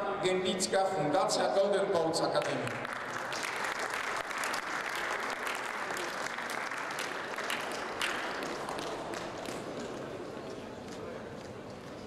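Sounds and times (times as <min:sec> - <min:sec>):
audience applauding: 0:02.5 - 0:10.6.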